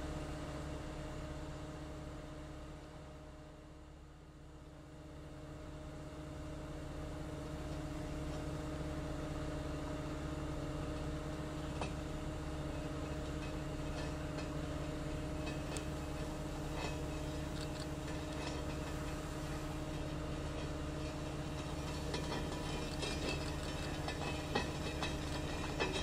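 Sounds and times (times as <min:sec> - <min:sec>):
large engine idling: 0:00.0 - 0:26.0.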